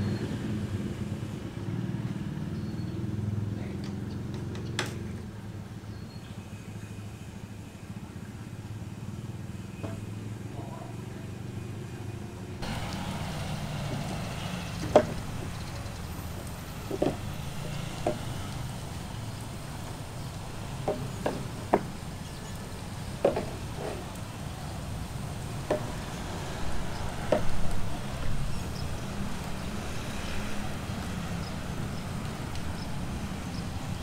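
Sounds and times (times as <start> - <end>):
light knocks and taps: 13.8 - 15.8, 16.9 - 18.6, 20.8 - 22.0, 23.2 - 24.2, 25.6 - 26.1.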